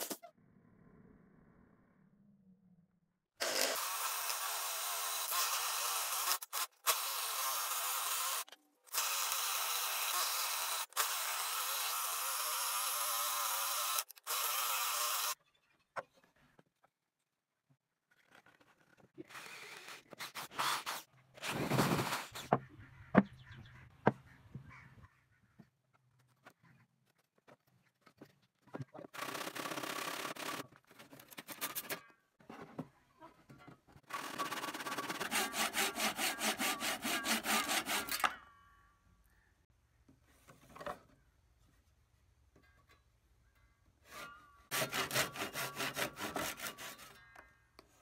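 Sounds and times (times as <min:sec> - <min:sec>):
electric drill boring into wood: 0:03.4 - 0:15.4
handsaw cutting wood: 0:34.1 - 0:38.3, 0:44.1 - 0:47.2.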